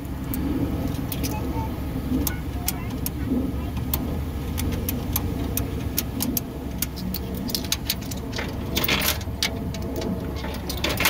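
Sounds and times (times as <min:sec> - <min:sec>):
steady low rumble: 0:00.0 - 0:11.0
metallic clatter: 0:04.0 - 0:11.0.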